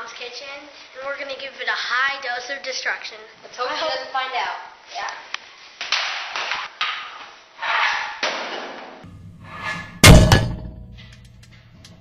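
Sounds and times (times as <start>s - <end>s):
puck striking metal with clang: 9.5s - 11.6s.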